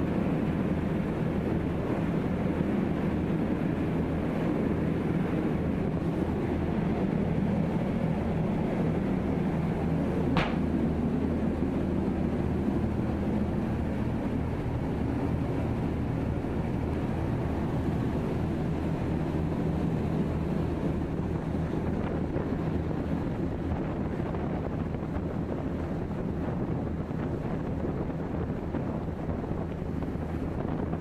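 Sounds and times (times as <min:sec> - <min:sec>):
boat engine droning: 0:00.0 - 0:31.0
water rushing along hull: 0:00.0 - 0:31.0
wind on microphone: 0:00.0 - 0:31.0.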